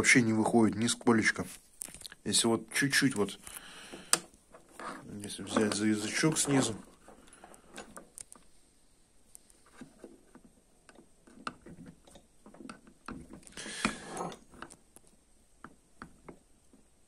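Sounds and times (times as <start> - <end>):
hands clicking and tapping linkage: 3.5 - 8.4
rustling scrape: 4.5 - 8.0.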